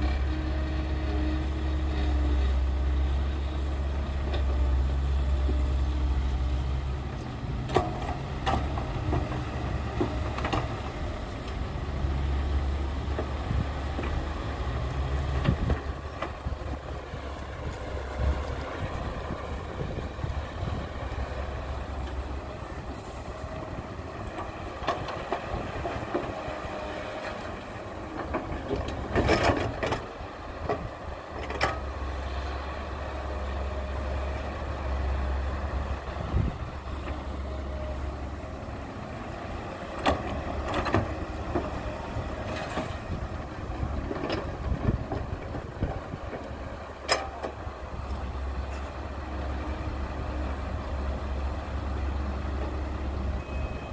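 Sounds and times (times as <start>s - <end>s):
excavator diesel engine running: 0.0s - 53.9s
excavator bucket clanking: 28.0s - 31.8s, 43.8s - 47.6s.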